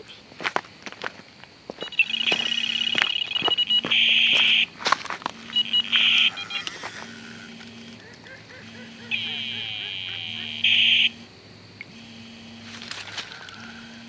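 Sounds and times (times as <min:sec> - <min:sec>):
footsteps crunching on stones: 0:00.4 - 0:07.8, 0:12.6 - 0:13.6
bite alarm beeps: 0:01.8 - 0:14.0
bite alarm steady high tone: 0:01.8 - 0:14.0
sharp clicks: 0:05.2 - 0:08.4.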